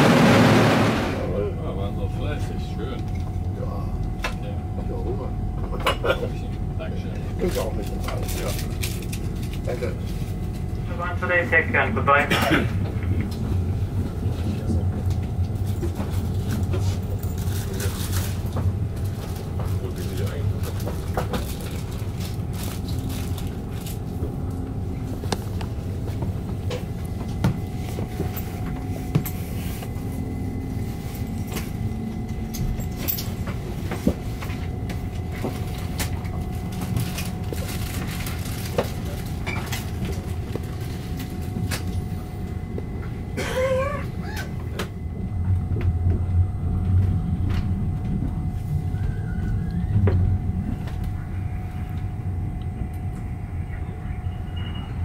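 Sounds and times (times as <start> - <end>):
train running rumble: 0.0 - 55.0
clicks and knocks of train: 11.2 - 24.3, 31.4 - 43.2.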